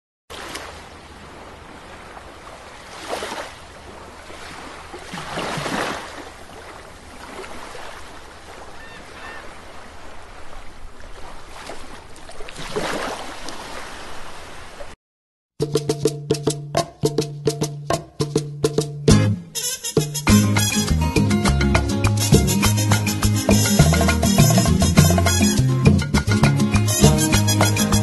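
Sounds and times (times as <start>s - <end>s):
waves breaking: 0.3s - 15.0s.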